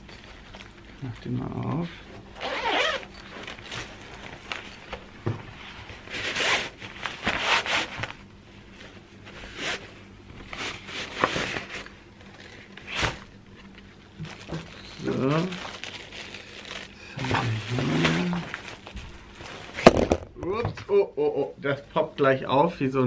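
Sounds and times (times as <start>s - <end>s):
zipper being pulled open: 2.4s - 3.3s.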